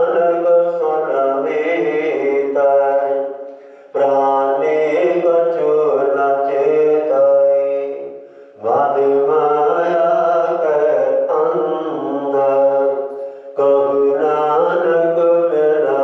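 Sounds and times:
man chanting: 0.0s - 16.0s.

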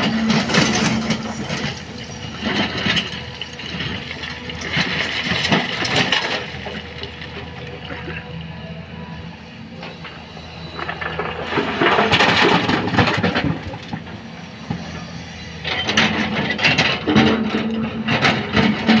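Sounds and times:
rock and gravel clattering: 0.0s - 8.1s, 10.7s - 14.2s
diesel engine running: 0.0s - 19.0s.

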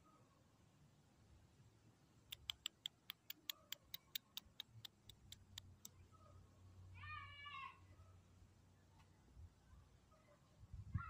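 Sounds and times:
rapid sharp clicks: 2.3s - 6.0s.

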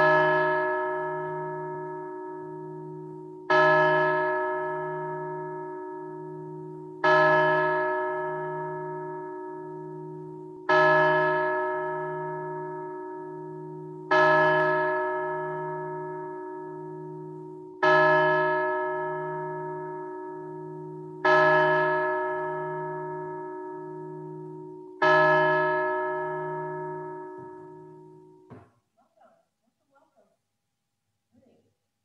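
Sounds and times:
church bell tolling: 0.0s - 28.6s.

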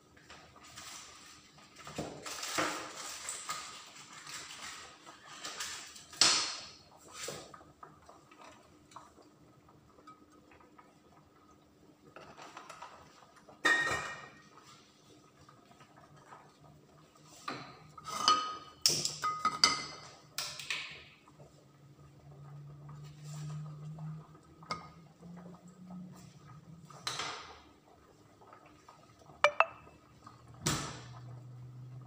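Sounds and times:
dishes and utensils clattering: 13.6s - 14.4s, 18.0s - 20.1s.

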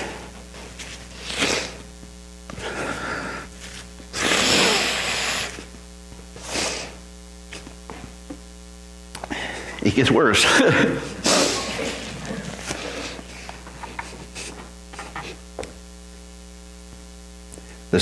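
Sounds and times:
man crying and sniffling: 10.6s - 13.4s.

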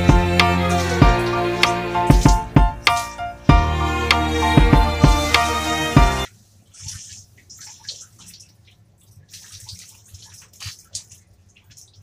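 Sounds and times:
scrubbing soapy dog coat: 0.0s - 2.6s, 6.4s - 12.0s
water dripping: 0.0s - 5.2s, 6.2s - 12.0s.

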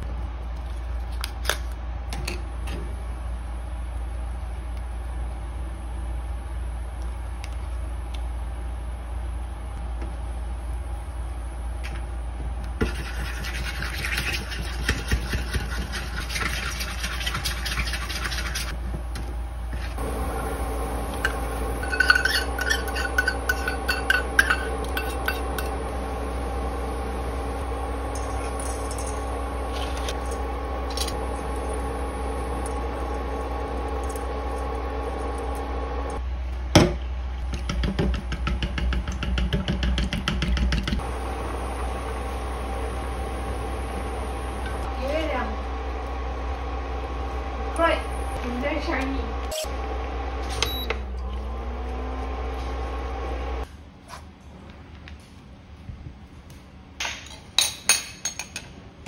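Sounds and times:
induction cooker humming: 0.0s - 53.7s
metal spoon stirring in bowl: 12.9s - 18.7s, 21.8s - 25.8s.

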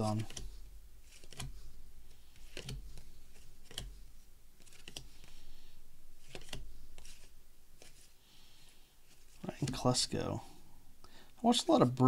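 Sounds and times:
card edges clicking: 0.0s - 1.6s, 2.3s - 4.0s, 4.6s - 5.4s, 6.2s - 8.1s
cards rustling: 0.0s - 8.2s, 9.0s - 10.0s.

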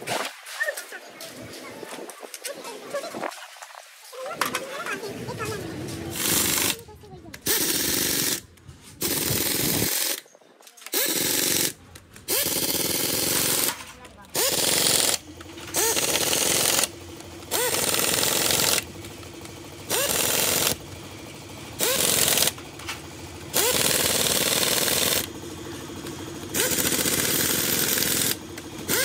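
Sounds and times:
rattling hammering power tool: 4.2s - 29.0s
power tool spinning up whine: 12.3s - 21.0s, 21.6s - 29.0s.

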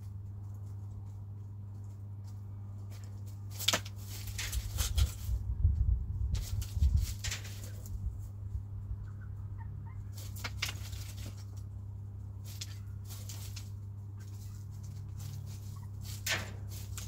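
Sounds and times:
chickens pecking and scratching: 0.0s - 17.0s
steady low hum: 0.0s - 17.0s
chickens clucking softly: 8.4s - 11.6s, 14.0s - 16.2s.

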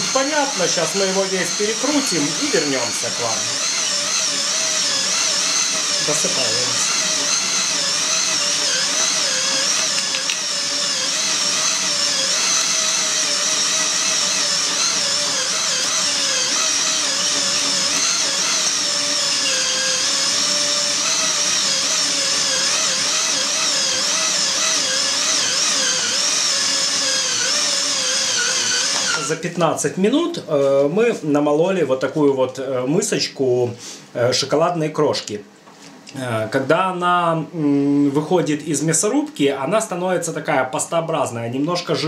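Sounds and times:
cordless drill whining: 0.0s - 29.4s.

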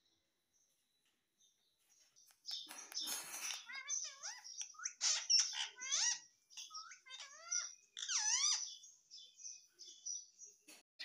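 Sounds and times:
parakeet squeaky calls: 2.5s - 8.9s.

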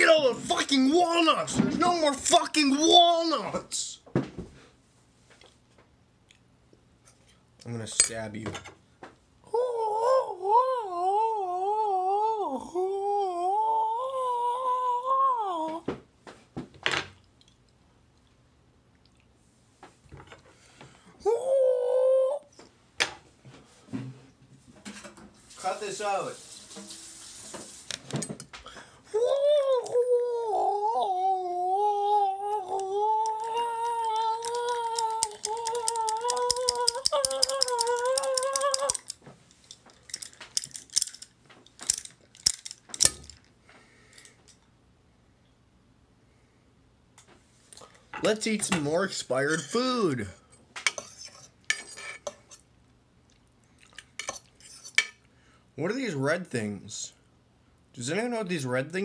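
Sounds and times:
man wailing: 0.0s - 3.9s, 9.5s - 15.8s, 21.2s - 22.5s, 29.1s - 39.1s
ratchety clicks of twisted object: 34.4s - 39.2s.

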